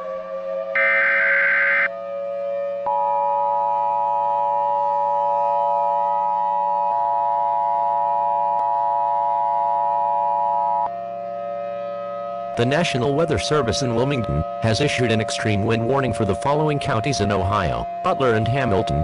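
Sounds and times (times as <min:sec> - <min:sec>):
low drone of held tones: 0:00.0 - 0:19.0
harsh buzzing data burst: 0:00.8 - 0:01.9
two-tone alert signal: 0:00.8 - 0:01.9.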